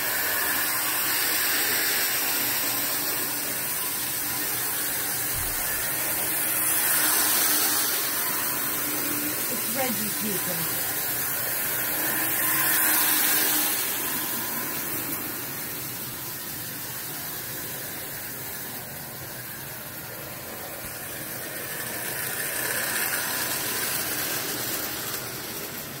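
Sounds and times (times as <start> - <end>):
toy train whirring rattle: 0.0 - 26.0.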